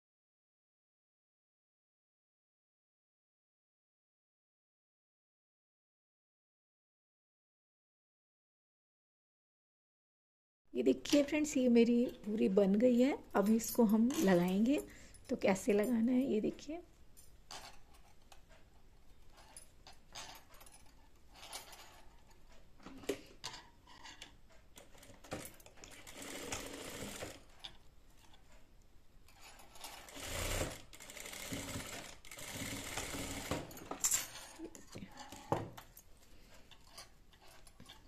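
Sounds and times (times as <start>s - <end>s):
sewing machine stitching: 24.8s - 27.8s, 29.4s - 33.9s.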